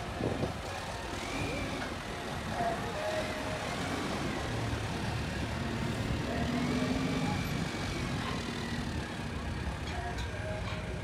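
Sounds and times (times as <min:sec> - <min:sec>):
engine and traffic rumble: 0:00.0 - 0:11.0.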